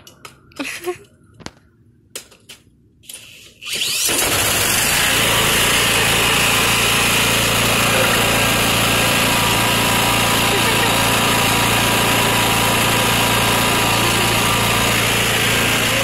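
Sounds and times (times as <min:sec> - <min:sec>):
cordless drill spinning: 0:03.6 - 0:09.2
mower engine running: 0:03.8 - 0:16.0.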